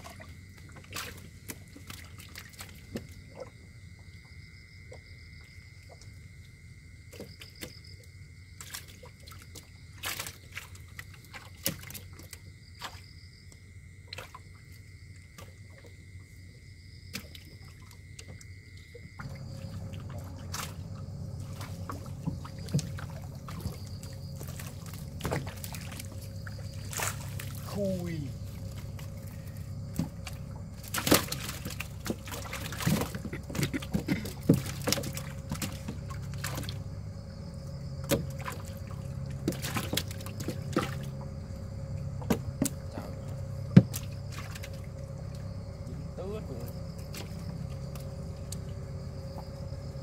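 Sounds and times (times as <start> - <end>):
water sloshing and splashing: 0.0 - 50.0
low hum: 8.7 - 50.0
steady high whine: 19.2 - 50.0.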